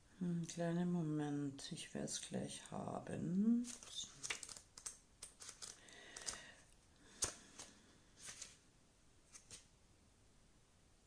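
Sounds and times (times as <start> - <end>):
paper pages rustling: 3.6 - 6.5, 7.1 - 8.6, 9.3 - 9.7
soft page clicks: 3.7 - 6.4, 7.1 - 8.6, 9.3 - 9.7.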